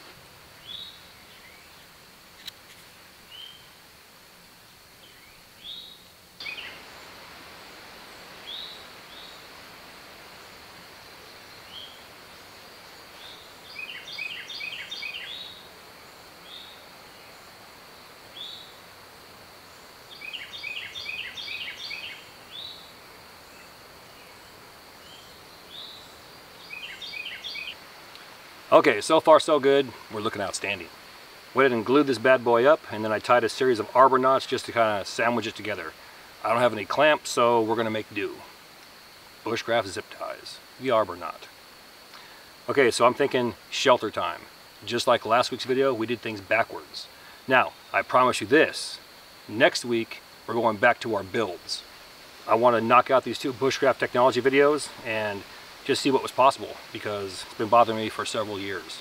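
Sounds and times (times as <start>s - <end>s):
high insect hum: 0.0s - 59.0s
songbirds whistling: 3.3s - 3.7s, 5.0s - 6.8s, 13.2s - 15.6s, 20.1s - 22.9s, 23.6s - 27.8s.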